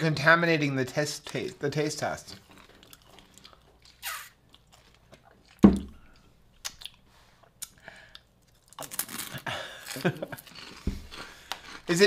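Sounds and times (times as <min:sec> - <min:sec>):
chewing and crunching: 0:02.3 - 0:11.9.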